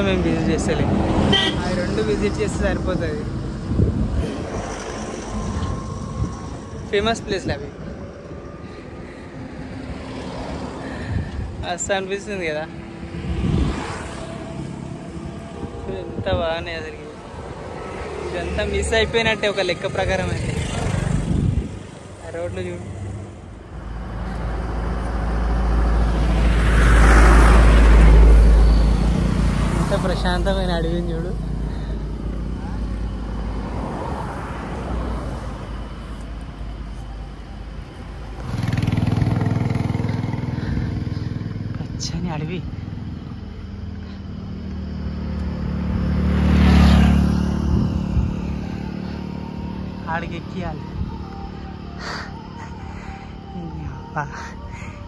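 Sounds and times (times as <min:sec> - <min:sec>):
motor vehicle passing: 0:00.0 - 0:55.0
wind rumble on microphone: 0:02.7 - 0:08.1, 0:13.0 - 0:17.6, 0:20.7 - 0:22.1, 0:47.5 - 0:48.8.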